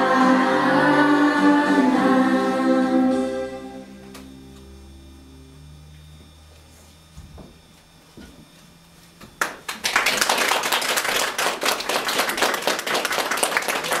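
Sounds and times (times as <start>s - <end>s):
people clapping in applause: 9.4s - 14.0s.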